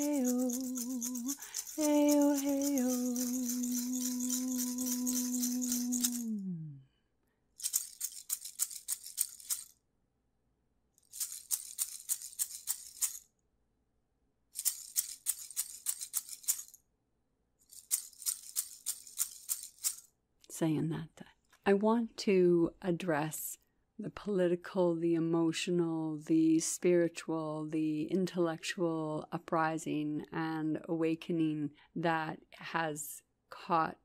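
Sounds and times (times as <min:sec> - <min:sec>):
hand rattle shaking: 0:00.0 - 0:06.6, 0:07.6 - 0:09.8, 0:11.0 - 0:13.3, 0:14.5 - 0:16.8, 0:17.6 - 0:20.1
person chanting: 0:00.0 - 0:06.8.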